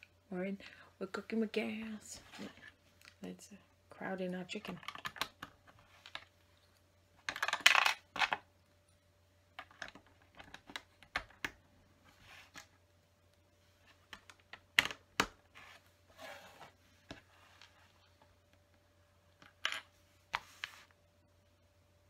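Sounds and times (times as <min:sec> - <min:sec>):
plastic bricks clicking and clattering: 0:07.2 - 0:08.5.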